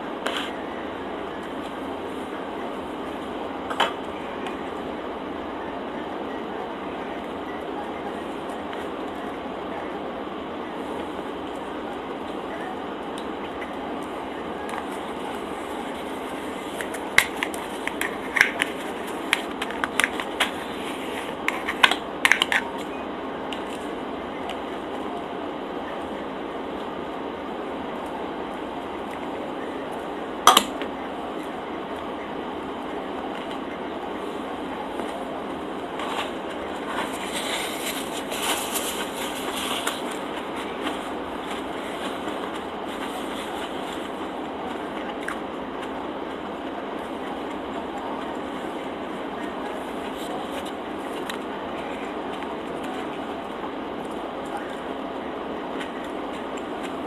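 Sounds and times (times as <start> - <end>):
steady background hiss: 0.0 - 57.0.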